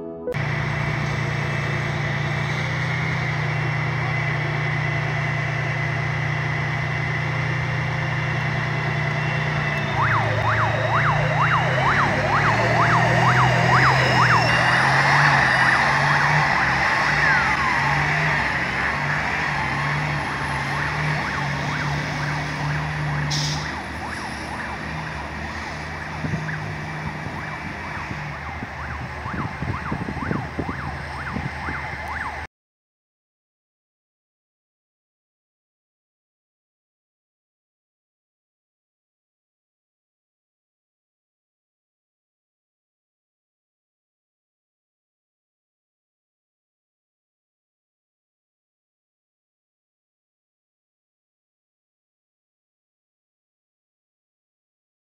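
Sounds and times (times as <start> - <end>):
heavy vehicle engine droning: 0.0 - 32.5.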